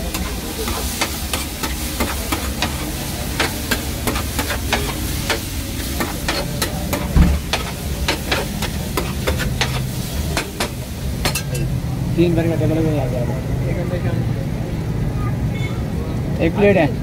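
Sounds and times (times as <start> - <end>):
metal spatula scraping on griddle: 0.0 - 11.7
steady sizzle: 0.0 - 14.0
heavy thump: 7.0 - 7.6.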